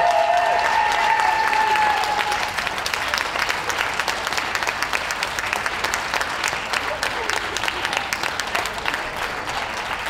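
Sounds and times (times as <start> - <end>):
high held cheers: 0.0 - 2.8
audience applauding: 0.0 - 10.0.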